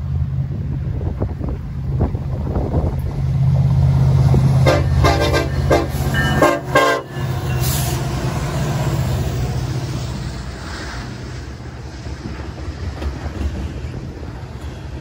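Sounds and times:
diesel locomotive engine drone: 0.0 - 15.0
train air horn blasts: 4.6 - 8.0.

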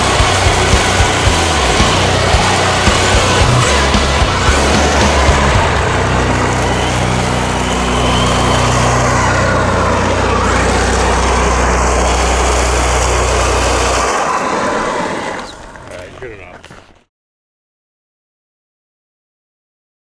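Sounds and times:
electric motor whine: 0.0 - 16.0
steady low drone: 0.0 - 16.4
tyres spraying gravel: 0.0 - 17.0.

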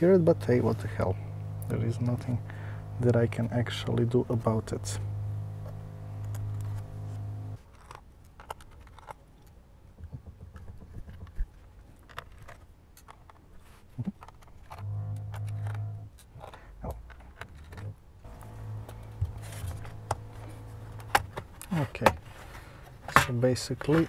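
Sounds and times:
drill humming: 0.4 - 7.6, 14.8 - 16.1, 18.3 - 21.2.

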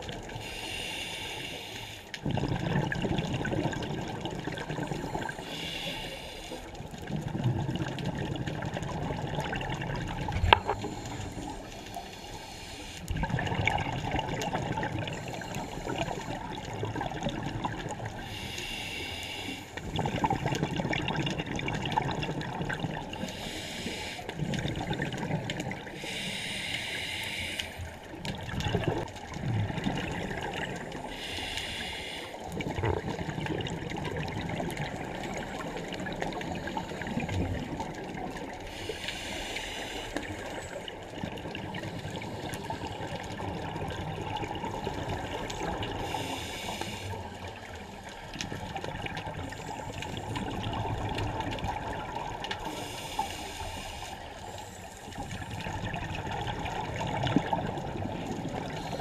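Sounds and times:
exhaled air bubbling: 0.0 - 59.0
regulator hissing inhalations: 0.4 - 2.1, 5.4 - 6.7, 10.7 - 13.1, 18.2 - 19.8, 23.2 - 24.3, 25.9 - 27.9, 31.1 - 32.4, 38.7 - 40.5, 46.0 - 47.4, 52.7 - 55.1.

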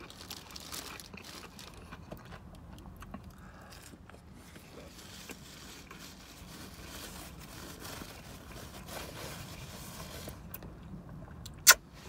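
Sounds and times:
chewing mouth noises: 0.0 - 6.0.

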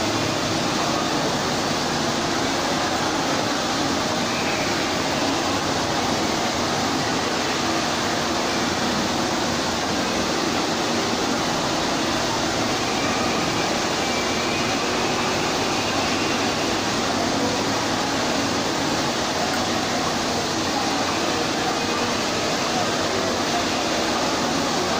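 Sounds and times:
fountain water splashing: 0.0 - 24.9.

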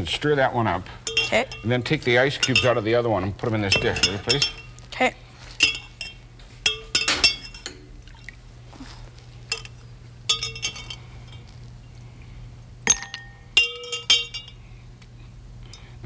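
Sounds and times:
metal spoon clinking on glass: 1.0 - 2.9, 3.6 - 4.8, 5.6 - 7.8, 9.5 - 11.5, 12.9 - 14.6.

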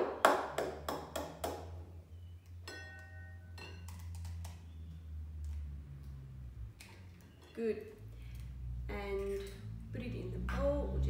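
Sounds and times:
bowl ringing tone: 2.6 - 3.9.

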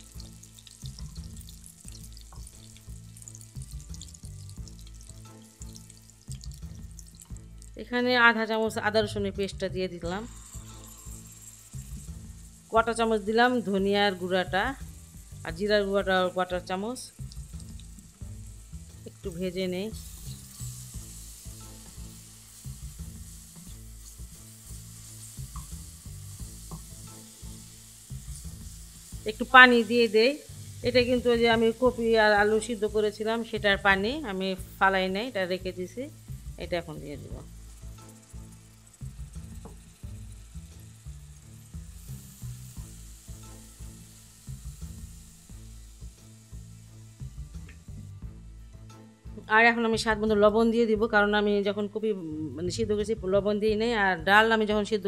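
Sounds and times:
background music with bass: 0.0 - 55.0
onion sizzling in hot oil: 0.0 - 55.0.

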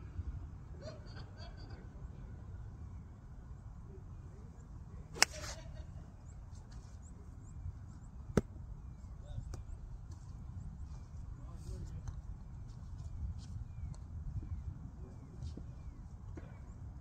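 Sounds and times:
golf club striking ball: 5.2 - 5.5, 8.4 - 8.6.

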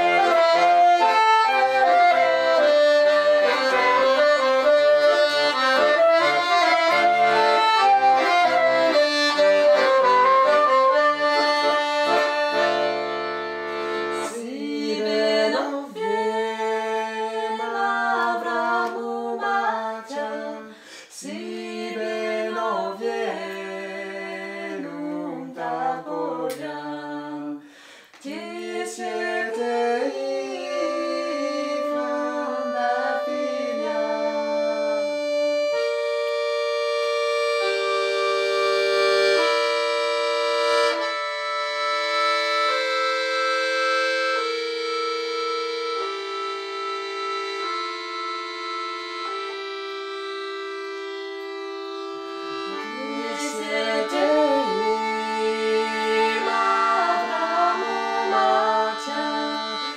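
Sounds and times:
piano accordion: 0.0 - 59.9
woman singing: 14.3 - 27.6, 28.2 - 35.0, 52.8 - 59.9
man singing: 28.3 - 35.3, 52.8 - 59.7.

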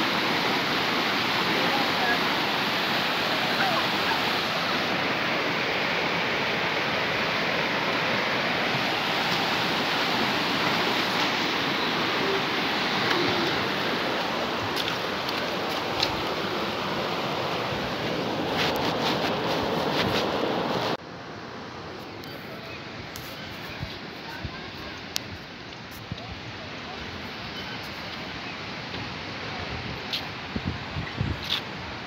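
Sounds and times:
river water pouring over ledge: 0.0 - 21.0.

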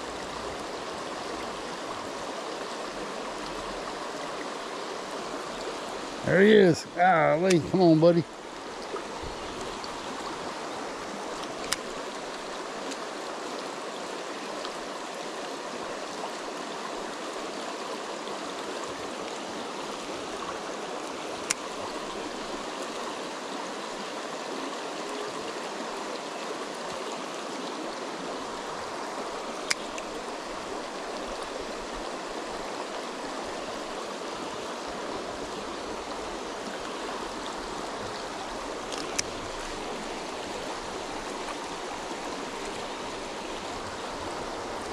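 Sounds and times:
creek running over rocks: 0.0 - 44.9
sharp clicks: 38.9 - 39.3.

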